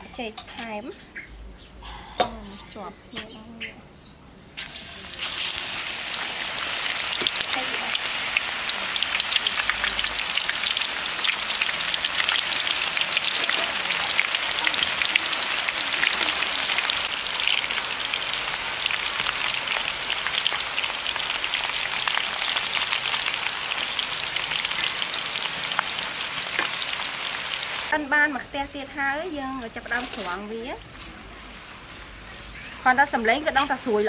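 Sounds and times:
oil bubbling and crackling: 4.6 - 28.0.

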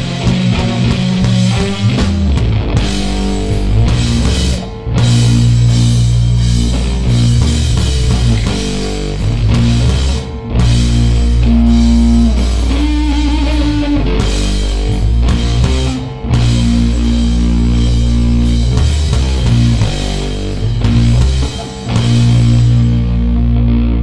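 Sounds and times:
rock band playing heavy rock: 0.0 - 24.0
long wavering held note: 11.4 - 14.2.

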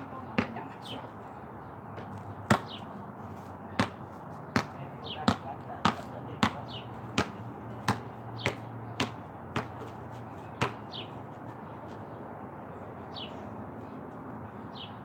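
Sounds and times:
basketball bouncing on concrete: 0.3 - 0.7, 2.0 - 2.8, 3.8 - 11.0.

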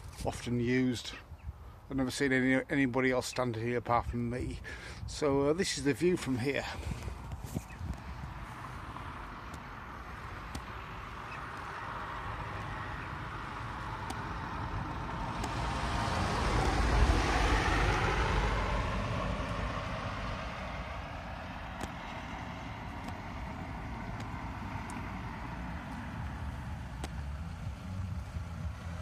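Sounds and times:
van driving past: 8.1 - 29.0.

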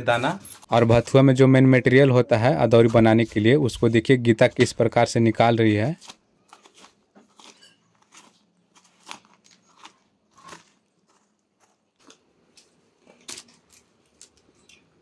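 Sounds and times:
scraper scraping gourd flesh: 5.9 - 12.2.

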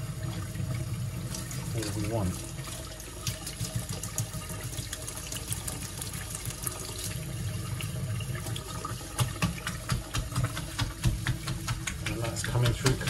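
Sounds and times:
tap water splashing into sink: 1.3 - 7.1, 8.4 - 13.0.

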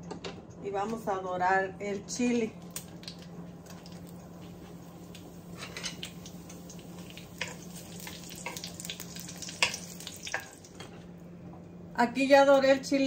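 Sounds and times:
chiles sizzling in oil: 2.6 - 10.9.

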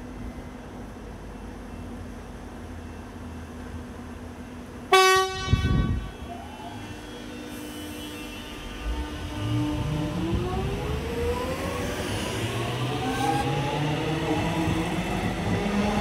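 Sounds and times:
train horn blast: 4.9 - 6.3, 7.4 - 10.2.

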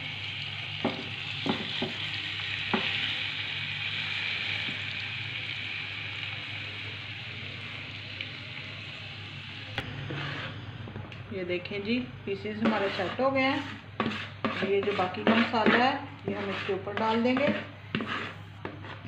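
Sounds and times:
chicken sizzling in frying pan: 0.0 - 9.8.

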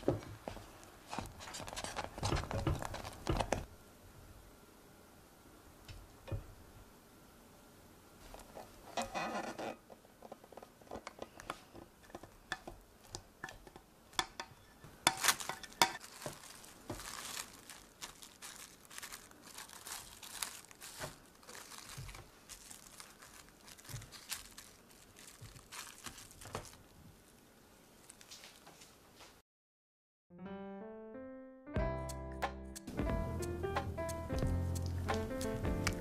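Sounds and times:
plastic cling wrap crinkling: 0.0 - 3.7, 13.0 - 29.0.

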